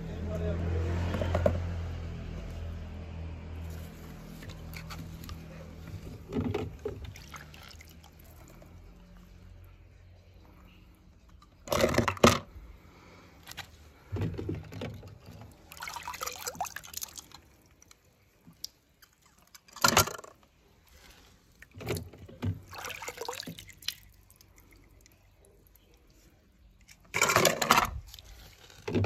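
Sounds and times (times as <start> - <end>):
water sloshing and dripping: 3.6 - 29.0
toy cars splashing into water: 6.7 - 9.6, 15.3 - 20.7, 21.3 - 26.2.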